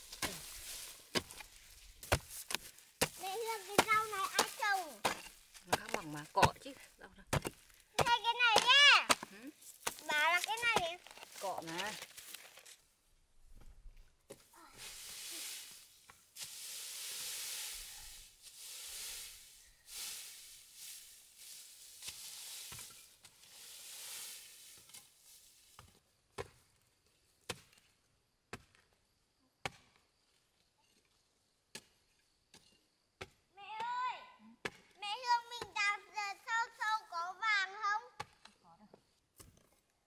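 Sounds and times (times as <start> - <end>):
hoes scraping and chopping soil: 0.0 - 12.8, 13.4 - 29.0, 30.8 - 34.0, 39.2 - 40.0.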